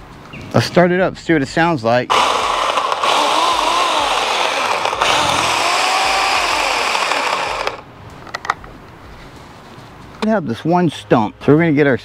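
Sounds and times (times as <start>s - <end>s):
electric chainsaw whirring: 2.1s - 7.8s.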